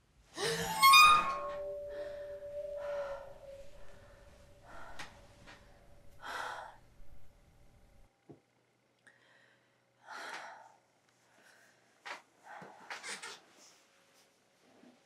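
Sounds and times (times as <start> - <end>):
woman gasping: 0.4 - 0.9, 6.1 - 7.3
held musical tone: 0.4 - 7.3
woman breathing heavily: 1.7 - 7.3, 9.1 - 11.8.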